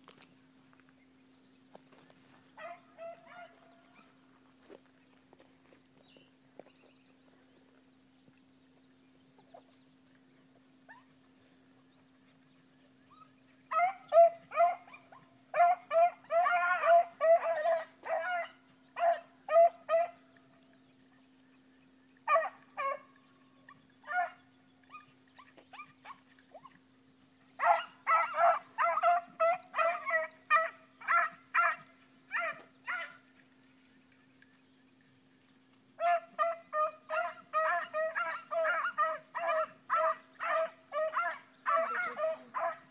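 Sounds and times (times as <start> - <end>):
hounds baying: 13.1 - 20.2, 22.3 - 26.8, 27.5 - 33.4, 36.0 - 42.9.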